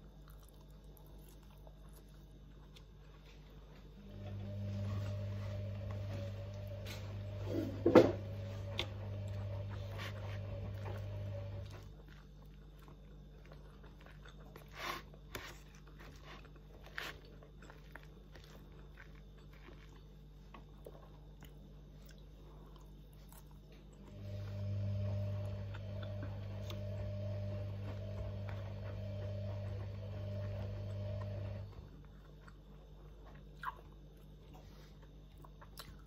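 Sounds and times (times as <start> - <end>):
chewing noodles: 0.0 - 36.0
machine hum: 1.8 - 13.8, 23.7 - 32.2.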